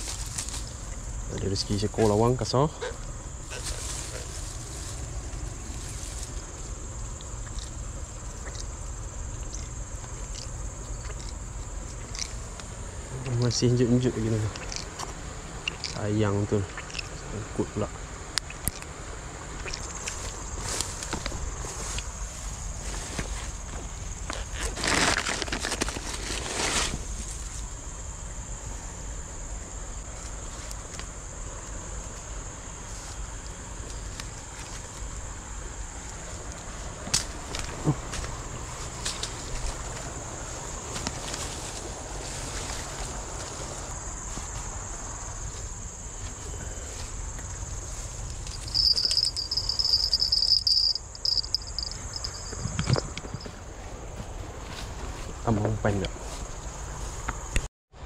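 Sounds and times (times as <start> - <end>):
insects buzzing: 0.0 - 58.0
fabric bag rustling: 24.5 - 27.2.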